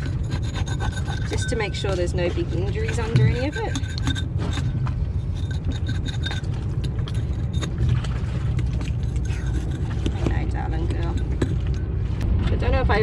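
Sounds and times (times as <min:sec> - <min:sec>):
low rumble: 0:00.0 - 0:13.0
metal blade scraping shell: 0:02.9 - 0:07.8.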